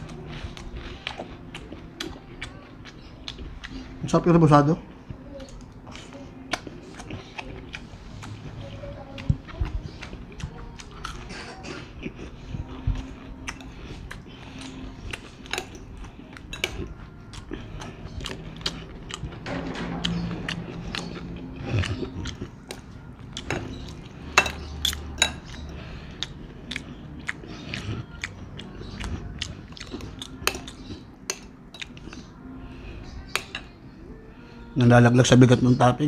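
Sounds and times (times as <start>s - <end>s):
cutlery clinking on ceramic plate: 23.4s - 25.6s.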